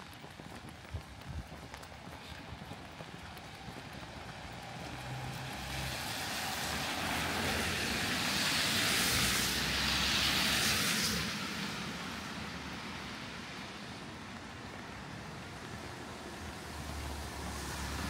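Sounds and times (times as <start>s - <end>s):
tyre hiss on wet road: 4.6s - 18.0s.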